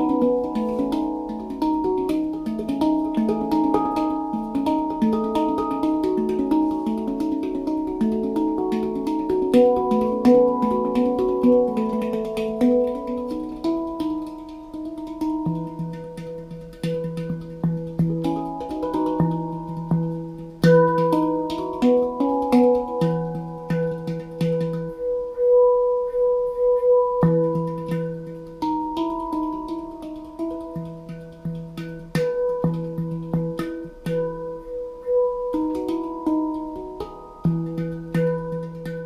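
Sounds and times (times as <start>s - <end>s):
deep low handpan note: 0.0s - 39.0s
handpan notes: 0.0s - 39.0s.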